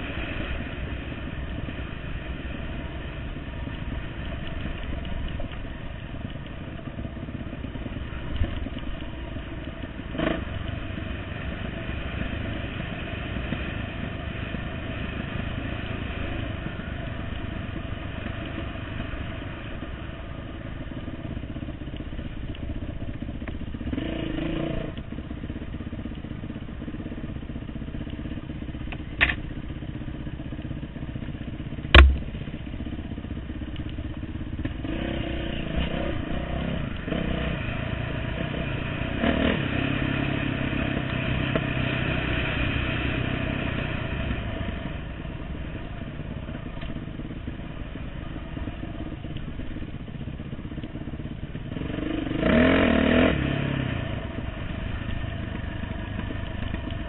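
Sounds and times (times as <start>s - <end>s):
short knock: 31.9s - 32.4s
sharp loud thump: 31.9s - 32.5s
dirt bike engine revving: 51.7s - 54.8s.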